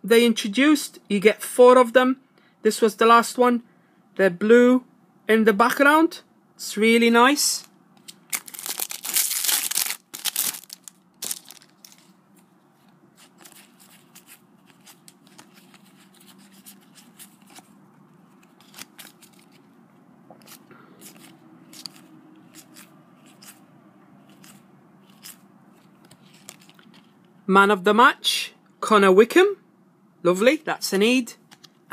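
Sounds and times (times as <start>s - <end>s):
wrapper and cards crackling: 7.6s - 12.2s, 13.2s - 19.7s, 20.4s - 23.6s, 24.3s - 27.1s
foil packet crinkling and tearing: 8.3s - 12.1s, 18.4s - 19.6s.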